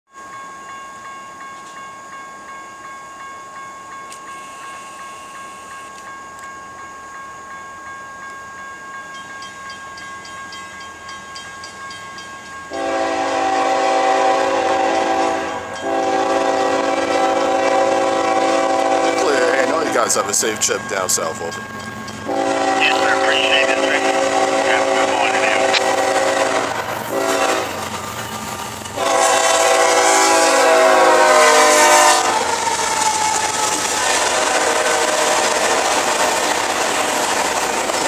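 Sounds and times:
faint steady high tone: 0:00.1 - 0:12.7
train air horn blasts: 0:12.7 - 0:20.2, 0:22.3 - 0:27.8, 0:29.0 - 0:32.8, 0:33.5 - 0:36.3.

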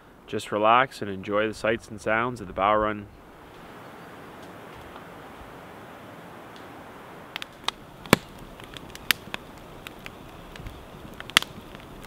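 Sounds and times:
faint steady hiss: 0:00.0 - 0:12.0
campfire crackling: 0:03.1 - 0:12.0
sharp pops of burning wood: 0:06.5 - 0:12.0.

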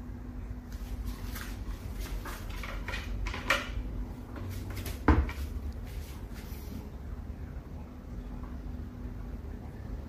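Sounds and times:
low steady hum: 0:00.0 - 0:10.0
towel rack clicking and scraping: 0:01.2 - 0:03.8.

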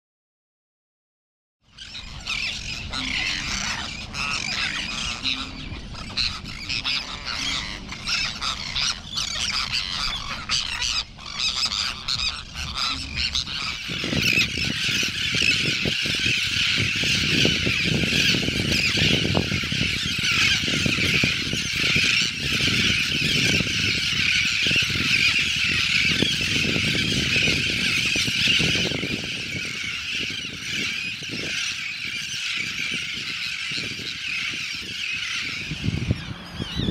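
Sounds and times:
tern colony calling: 0:01.7 - 0:36.9
low rumbling noise: 0:01.8 - 0:25.0, 0:34.2 - 0:36.9.

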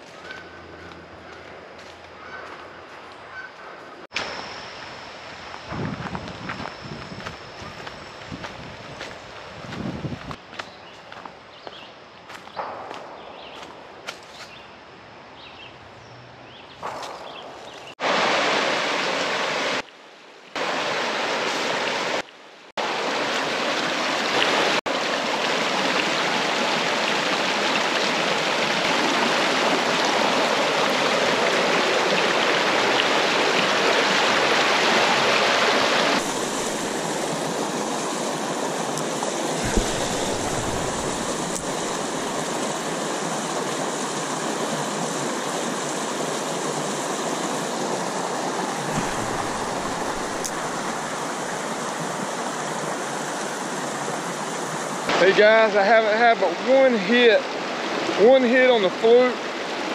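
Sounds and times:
river water rushing over rocks: 0:18.0 - 0:19.8, 0:20.6 - 0:22.2, 0:22.8 - 0:55.3.

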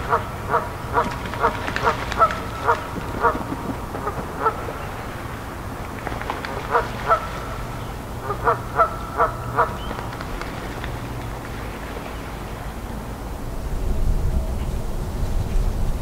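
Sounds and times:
geese honking: 0:00.0 - 0:10.8
geese splashing in water: 0:00.0 - 0:13.4.

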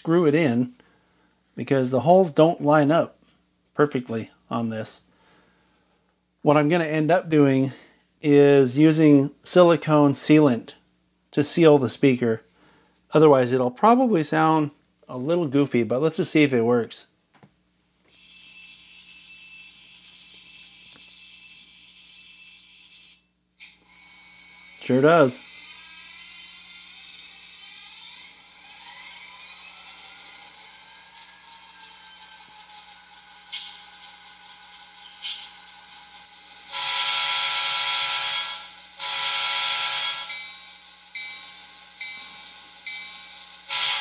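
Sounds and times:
thin model locomotive horn: 0:36.7 - 0:40.5, 0:43.7 - 0:44.0.

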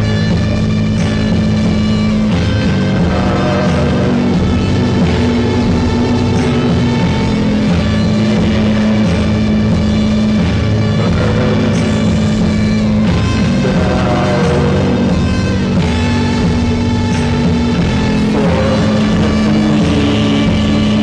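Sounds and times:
cymbal crashes: 0:00.0 - 0:21.0
heavy rock music: 0:00.0 - 0:21.0.

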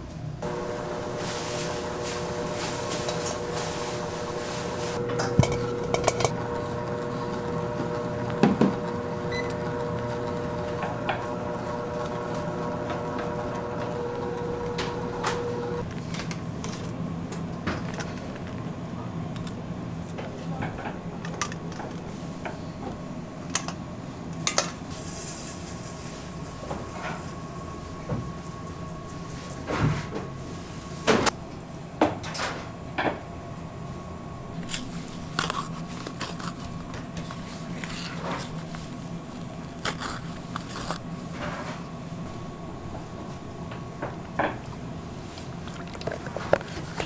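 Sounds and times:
machine hum: 0:00.2 - 0:20.0.

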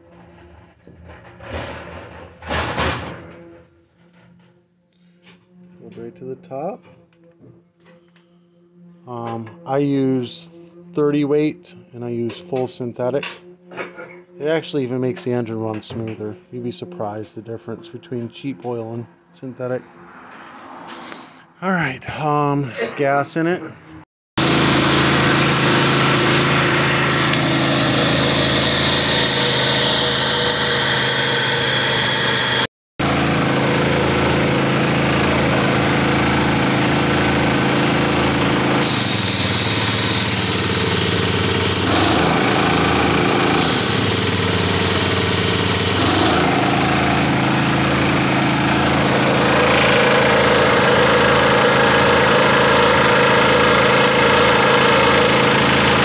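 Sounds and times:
engine running steadily: 0:24.4 - 0:56.0.

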